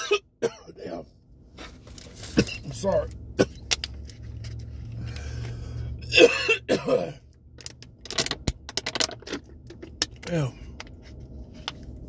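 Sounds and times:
man coughing: 0:00.0 - 0:00.8, 0:02.3 - 0:02.7, 0:06.0 - 0:07.2.

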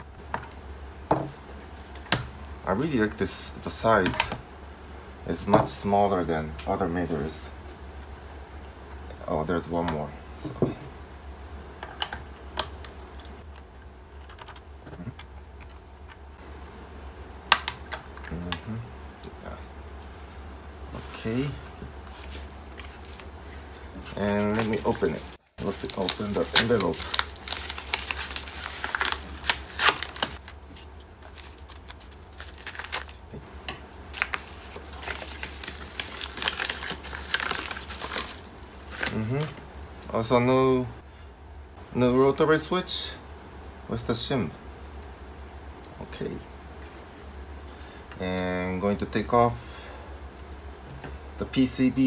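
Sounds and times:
steady low hum: 0:00.0 - 0:52.0
paper envelope crinkling: 0:21.1 - 0:40.1.

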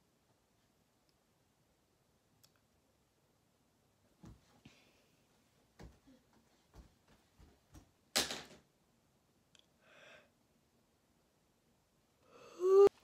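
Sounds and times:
woman yawning: 0:12.3 - 0:13.0.

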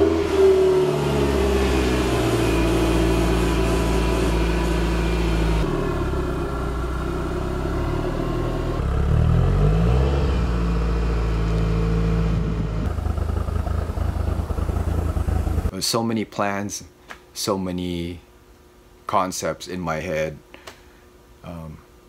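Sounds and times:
engine revving: 0:00.0 - 0:15.7
car engine idling: 0:00.9 - 0:09.2, 0:10.7 - 0:15.7.

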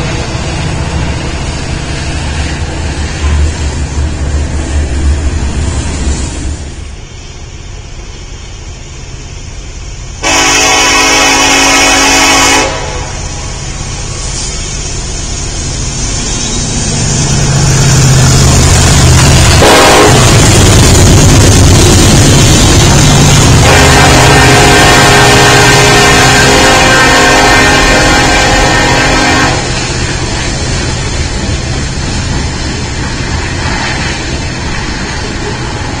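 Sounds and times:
locomotive engine rumble: 0:00.0 - 0:36.0
train wheel noise: 0:00.0 - 0:36.0
train horn blast: 0:10.2 - 0:13.6, 0:19.6 - 0:20.5, 0:23.4 - 0:29.8.

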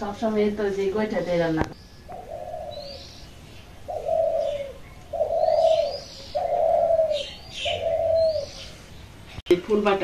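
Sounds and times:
small birds chirping: 0:00.0 - 0:10.0
dove cooing: 0:01.0 - 0:08.9.

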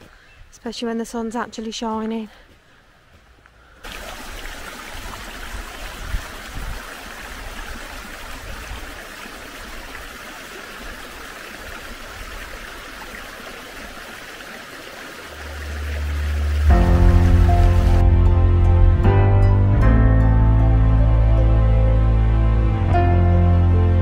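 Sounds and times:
stream running: 0:03.2 - 0:18.2
background music low note: 0:15.4 - 0:24.0.

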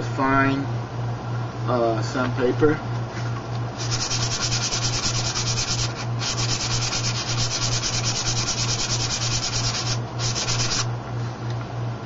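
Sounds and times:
sandpaper rubbing on blade: 0:03.8 - 0:10.9.

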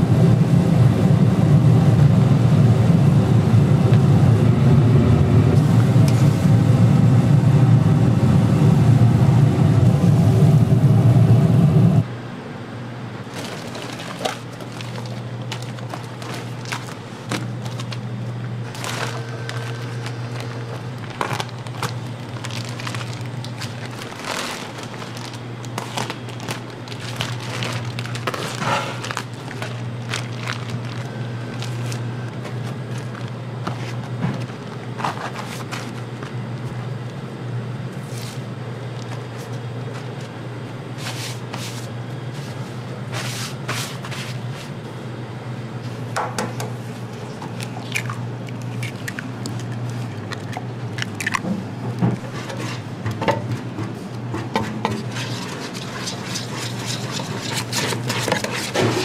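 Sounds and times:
steady low hum: 0:00.0 - 0:59.0
plastic packs crinkling: 0:13.2 - 0:36.7, 0:47.2 - 0:51.5, 0:54.8 - 0:59.0
sharp crackles: 0:18.7 - 0:32.0.

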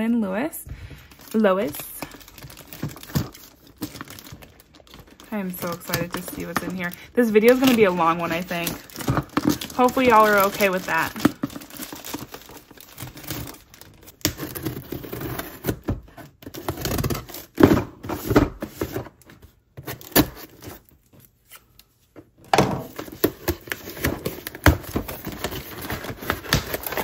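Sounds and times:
plastic rustling and tearing: 0:01.0 - 0:22.0, 0:22.9 - 0:27.0
scissors cutting plastic: 0:01.8 - 0:17.8, 0:22.9 - 0:27.0.

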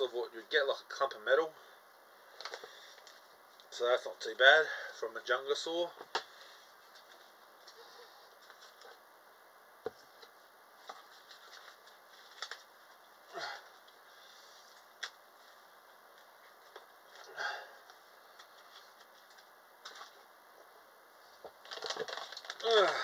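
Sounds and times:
packaging rustles: 0:10.2 - 0:13.0, 0:21.4 - 0:23.0.

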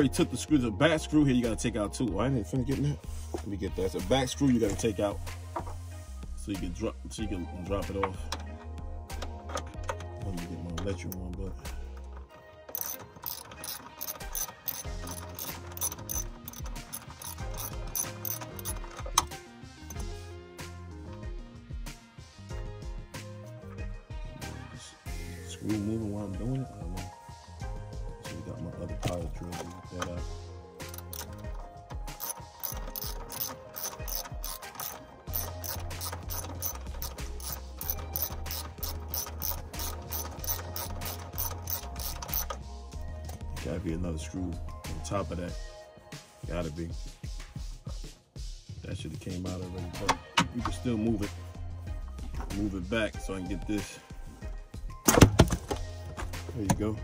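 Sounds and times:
background music: 0:00.0 - 0:57.0
ratchet wrench clicking: 0:12.0 - 0:20.0, 0:30.8 - 0:42.7.

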